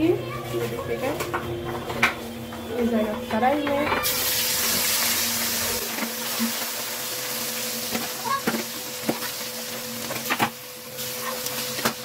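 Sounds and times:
fish sizzling in hot oil: 4.0 - 12.0.

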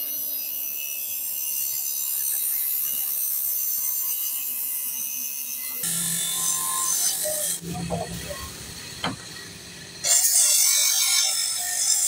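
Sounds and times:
cut-off wheel grinding hose: 5.8 - 10.9.

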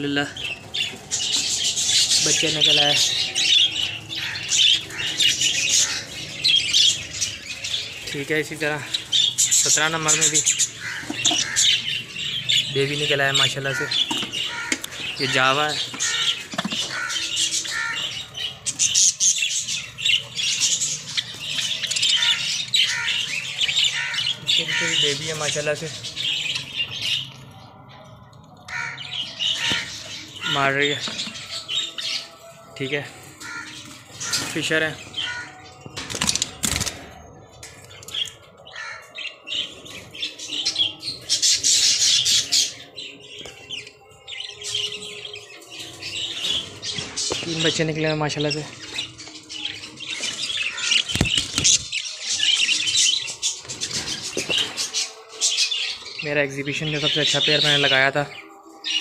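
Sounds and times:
birds squawking and chirping: 0.0 - 59.0
lovebird squawking harshly: 10.4 - 11.8.

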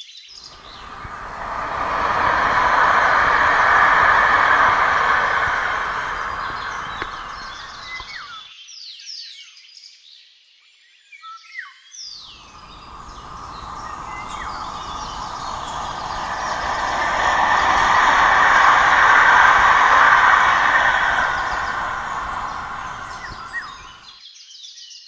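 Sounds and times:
passenger train rumble: 0.5 - 8.3, 12.4 - 24.1
train wheels rumbling on rails: 0.6 - 8.2, 12.4 - 24.0
birds chirping: 0.6 - 8.3, 12.5 - 24.0.

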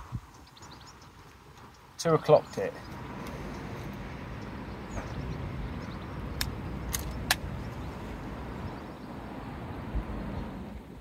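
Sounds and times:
steady low rumble: 2.7 - 11.0
air rifle cocking clicks: 6.4 - 7.5.

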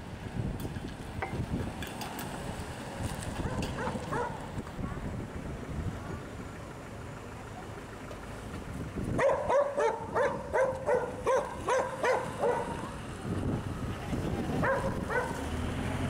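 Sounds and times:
dog barking: 3.4 - 4.4, 9.2 - 12.9, 14.6 - 15.4.

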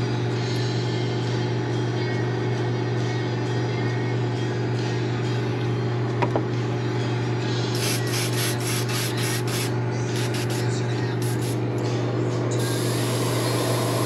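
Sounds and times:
air compressor humming: 7.7 - 14.0
short hissing air bursts: 7.8 - 11.6, 12.6 - 14.0.

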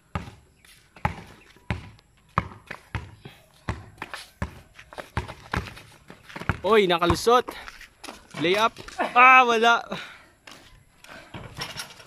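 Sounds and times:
basketball bouncing on concrete: 0.0 - 9.0.

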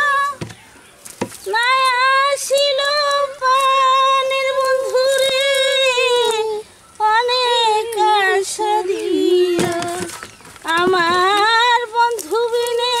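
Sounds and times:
high-pitched voice singing: 1.5 - 10.1.

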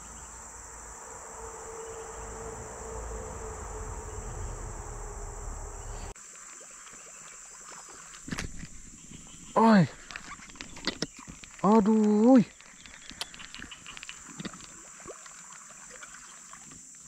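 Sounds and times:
low rumble: 0.0 - 6.2
high-pitched insect chorus: 0.0 - 17.0.

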